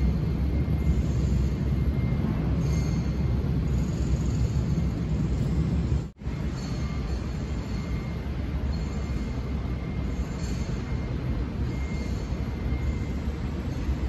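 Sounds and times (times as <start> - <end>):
low rumbling background noise: 0.0 - 14.0.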